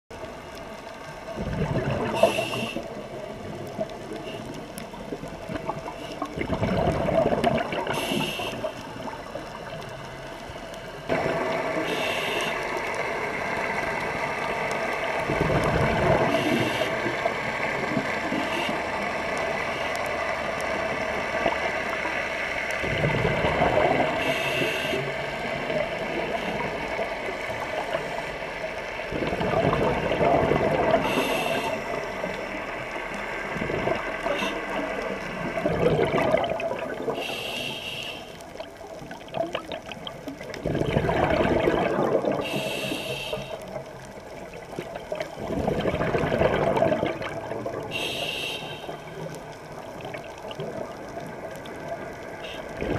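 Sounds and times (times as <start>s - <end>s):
exhaled bubbles underwater: 0.1s - 10.4s, 11.0s - 52.9s
hissing regulator inhalations: 2.1s - 3.0s, 7.9s - 8.8s, 11.8s - 12.7s, 24.2s - 25.2s, 31.0s - 32.0s, 37.1s - 38.4s, 42.4s - 43.7s, 47.9s - 49.2s.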